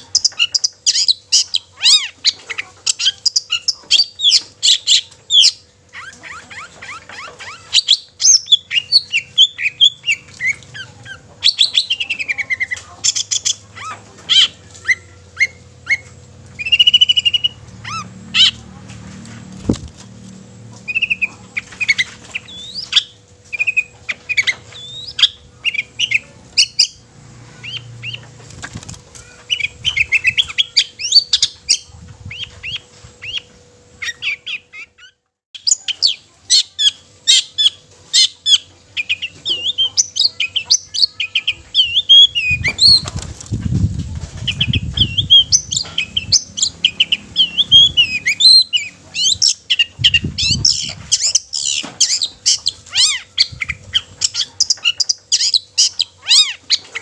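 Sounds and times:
shrike singing: 0.0s - 18.7s, 44.5s - 57.0s.

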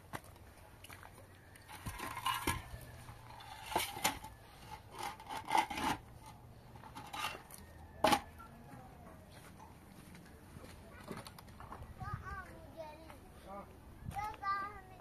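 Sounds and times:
gritty scrapes of block on block: 4.8s - 6.0s.

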